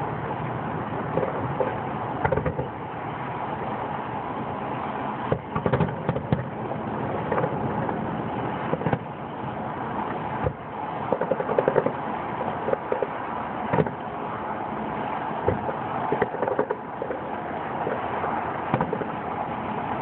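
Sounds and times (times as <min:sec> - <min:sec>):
steady background rush: 0:00.0 - 0:20.0
distant fireworks bangs and pops: 0:10.4 - 0:14.0.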